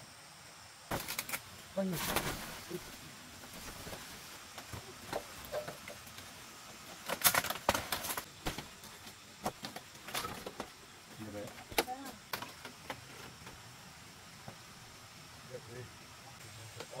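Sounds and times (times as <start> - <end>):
dry thatch rustling and crackling: 0.9 - 13.7.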